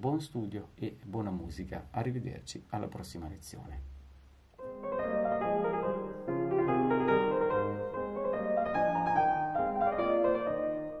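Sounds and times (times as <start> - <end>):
piano music: 4.6 - 11.0.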